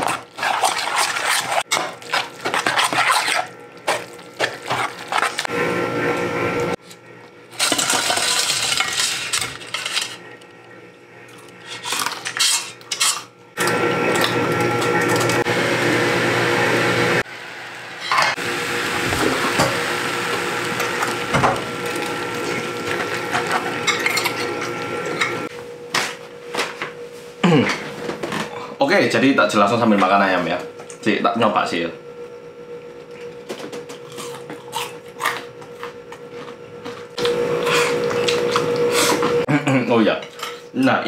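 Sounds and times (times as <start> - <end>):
metal utensils clinking on pot: 23.4 - 25.4.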